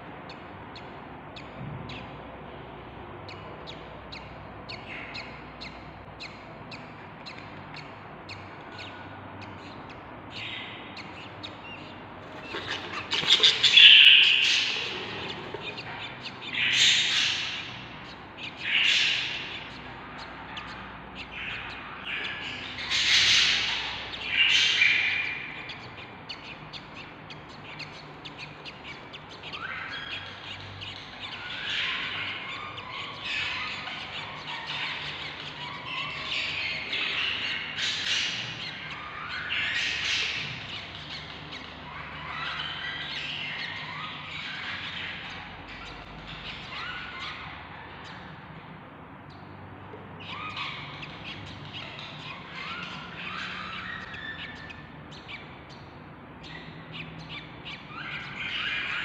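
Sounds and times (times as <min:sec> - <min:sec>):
chicks chirping: 0:03.3 - 0:48.5, 0:50.2 - 0:59.0
bird squawks: 0:10.4 - 0:48.4.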